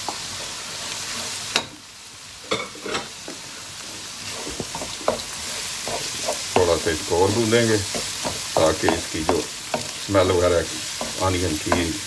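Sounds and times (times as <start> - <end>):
food sizzling in a pan: 0.0 - 12.0
wooden spoon knocking a pan: 4.5 - 5.3, 5.9 - 12.0.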